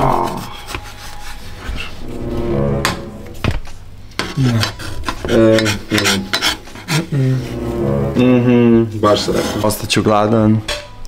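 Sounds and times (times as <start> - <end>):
person vocalizing: 6.9 - 8.9.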